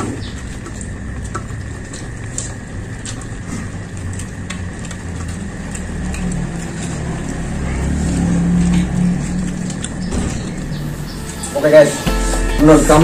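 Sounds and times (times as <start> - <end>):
eating clicks: 0.0 - 11.4
vehicle engine running: 0.0 - 13.0.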